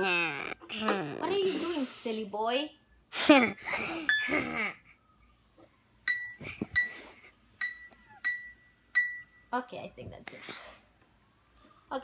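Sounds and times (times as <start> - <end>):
child vocal sound: 0.0 - 2.0.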